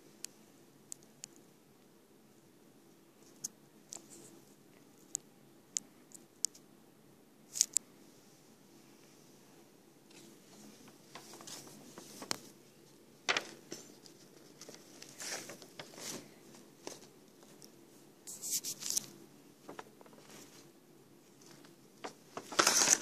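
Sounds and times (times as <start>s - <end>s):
paper sheets rustling: 10.1s - 12.6s, 13.2s - 17.7s, 18.3s - 20.7s, 21.4s - 23.0s.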